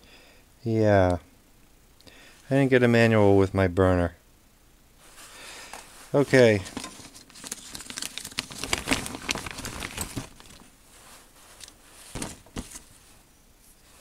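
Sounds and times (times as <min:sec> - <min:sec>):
plastic bag crinkling: 0:06.2 - 0:10.8.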